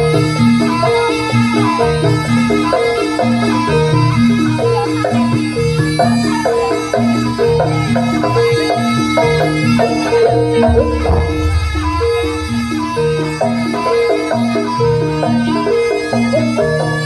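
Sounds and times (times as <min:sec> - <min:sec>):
drums: 0:00.0 - 0:17.0
metal-keyed instruments melody: 0:00.0 - 0:17.0
heavy low strokes: 0:10.6 - 0:13.6.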